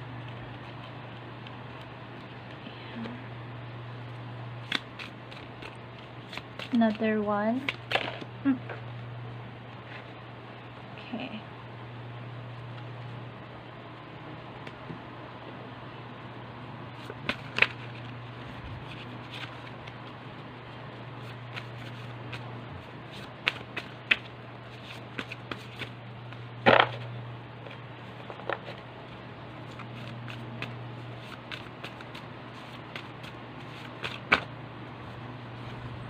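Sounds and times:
steady low hum: 0.0 - 36.0
cards being shuffled: 0.1 - 3.1, 4.6 - 8.3, 17.0 - 20.4, 21.2 - 34.5
card snaps and taps: 4.6 - 7.0, 23.4 - 24.3, 32.9 - 34.5.

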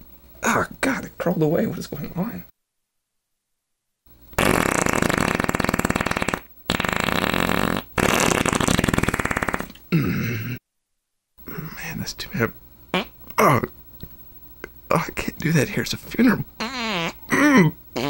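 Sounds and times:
fluttering farts: 4.4 - 9.8.

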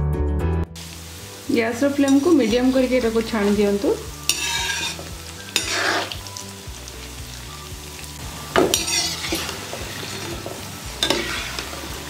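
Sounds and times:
fritters sizzling in hot oil: 0.8 - 12.0
slotted spoon stirring in oil: 3.4 - 6.4, 8.6 - 12.0.

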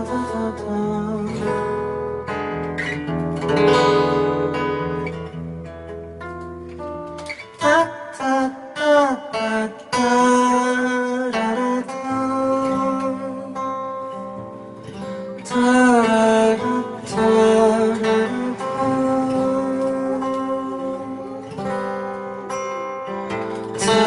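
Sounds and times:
man singing: 0.0 - 2.0, 7.4 - 14.4, 15.3 - 22.6, 23.5 - 24.0
acoustic guitar: 0.0 - 24.0.

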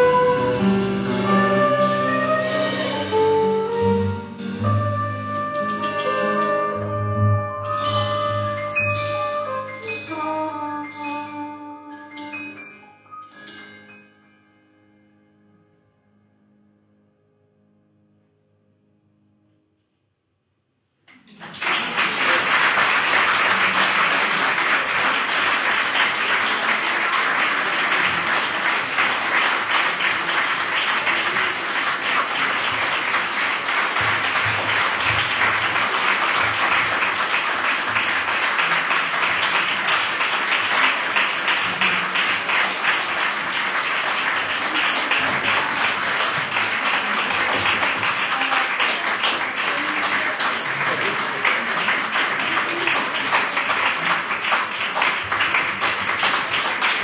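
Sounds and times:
audience applauding: 21.1 - 57.0.

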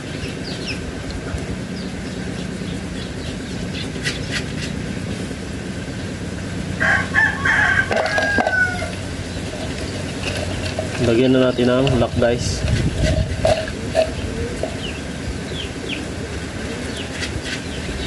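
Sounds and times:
rooster crowing: 6.8 - 9.0.

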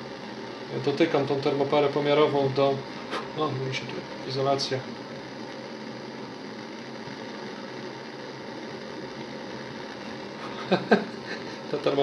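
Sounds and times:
blowtorch hissing: 0.0 - 12.0.

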